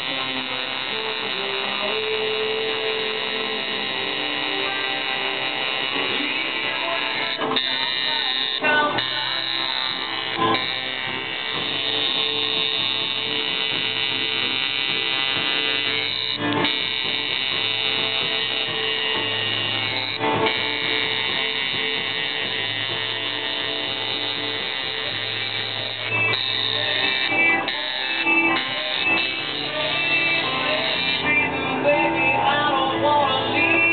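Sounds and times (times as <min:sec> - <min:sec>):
background music: 0:00.0 - 0:33.9
tattoo machine buzzing: 0:00.0 - 0:33.9.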